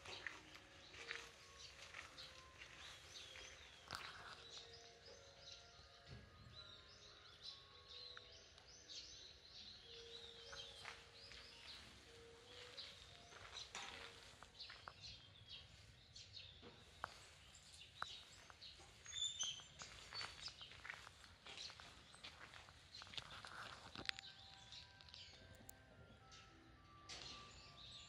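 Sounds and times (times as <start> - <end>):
small birds twittering: 0.0 - 26.5.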